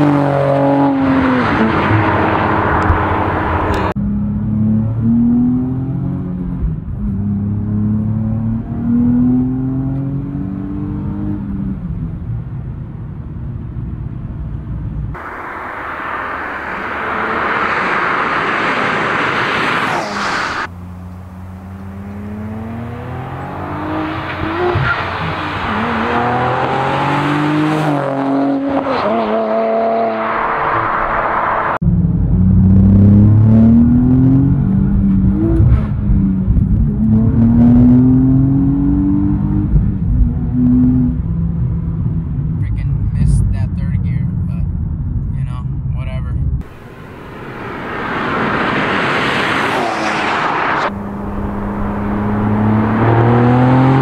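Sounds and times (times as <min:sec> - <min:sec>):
car rushing past: 0:00.0 - 0:06.5, 0:15.1 - 0:42.7, 0:46.6 - 0:54.0
car exhaust accelerating hard: 0:13.9 - 0:45.4, 0:46.5 - 0:54.0.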